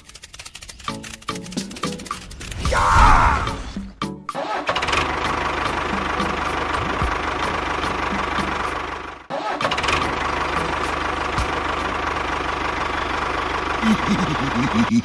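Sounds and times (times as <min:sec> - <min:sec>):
tractor engine running: 0:00.0 - 0:04.1, 0:04.7 - 0:15.0.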